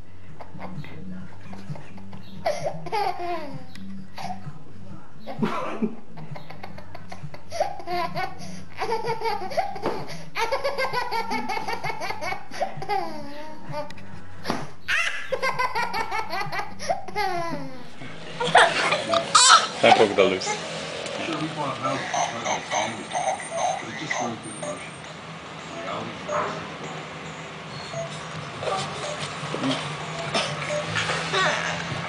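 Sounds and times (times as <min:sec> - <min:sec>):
toddler laughing: 0:01.5 - 0:04.4, 0:06.2 - 0:13.9, 0:14.9 - 0:20.7, 0:22.0 - 0:24.4, 0:28.6 - 0:32.0.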